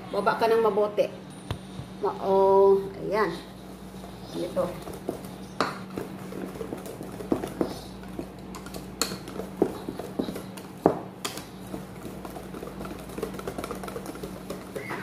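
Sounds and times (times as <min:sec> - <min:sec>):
whisk clicking against metal bowl: 0:04.0 - 0:15.0.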